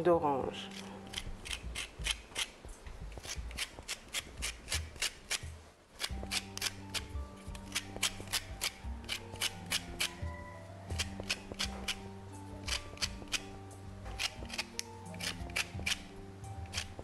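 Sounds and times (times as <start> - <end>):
background music: 0.0 - 17.0
orange peel grated on metal grater: 0.6 - 10.2.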